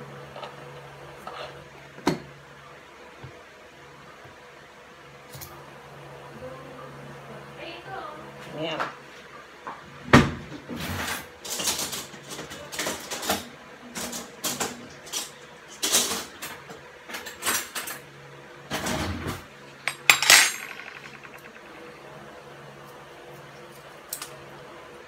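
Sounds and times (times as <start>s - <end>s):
metal cookware clattering: 19.9s - 21.7s
quick metal rattle: 19.9s - 21.8s.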